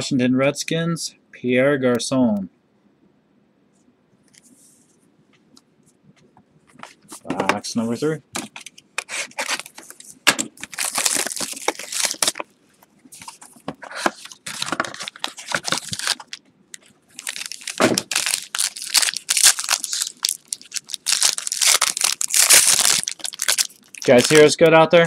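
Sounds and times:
foil wrapper crinkling and tearing: 10.6s - 12.5s, 13.2s - 24.6s.

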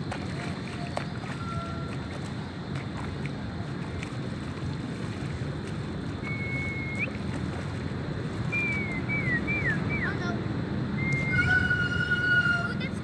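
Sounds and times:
wind rumble on microphone: 0.0s - 13.0s
thin high whistling tone: 6.3s - 7.2s, 8.5s - 10.1s.

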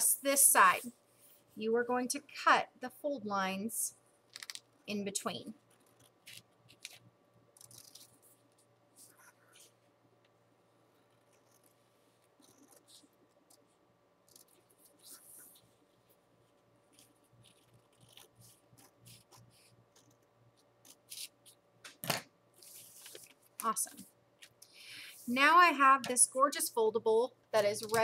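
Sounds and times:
scissors cutting paper: 7.6s - 8.2s, 16.9s - 20.2s, 20.8s - 21.6s.

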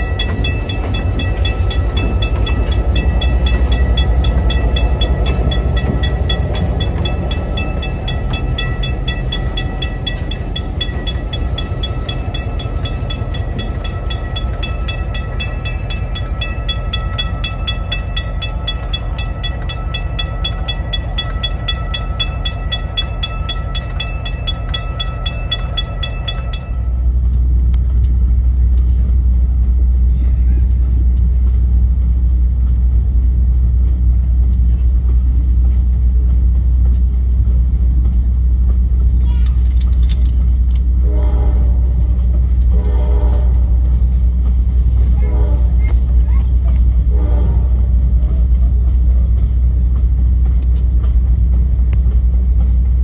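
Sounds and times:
high ringing: 0.0s - 27.0s
locomotive engine rumble: 0.0s - 53.0s
moving train rumble: 0.0s - 53.0s.

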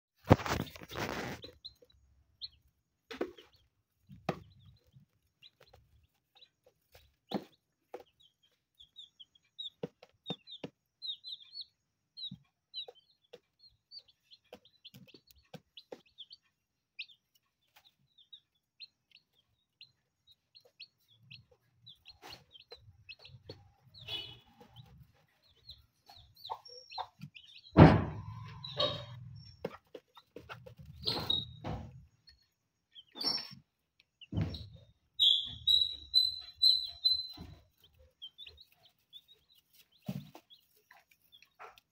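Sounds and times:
beaks pecking on plastic: 0.2s - 32.4s
chicks peeping: 0.2s - 41.9s
loud knock: 27.8s - 28.3s
hen clucking softly: 28.2s - 31.3s.

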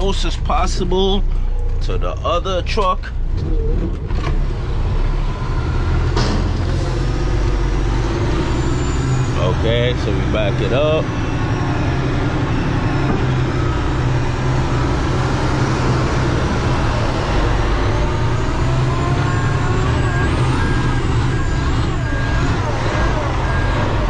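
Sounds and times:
diesel truck engine running: 0.0s - 24.0s
backup alarm beeping: 18.6s - 24.0s.

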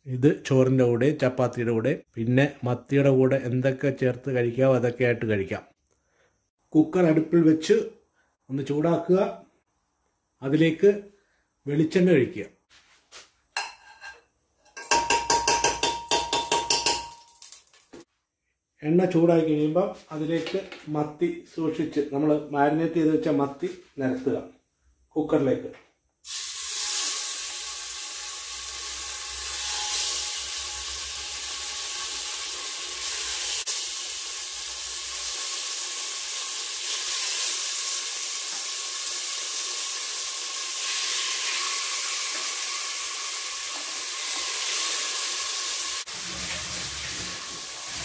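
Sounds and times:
fish sizzling in hot oil: 26.2s - 48.0s.

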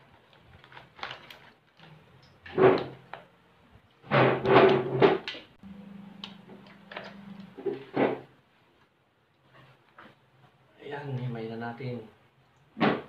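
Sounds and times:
crab shells cracking and clattering: 0.3s - 3.2s
steady low hum: 5.6s - 9.3s.

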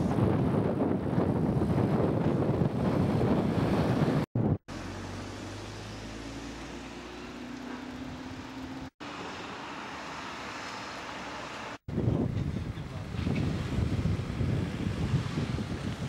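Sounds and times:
vehicle engine hum: 2.8s - 13.2s
road traffic hiss: 4.7s - 16.0s.

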